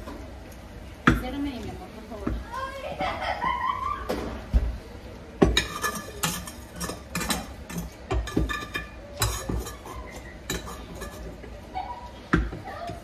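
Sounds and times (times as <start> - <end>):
dishes and cutlery clinking: 5.4 - 13.0.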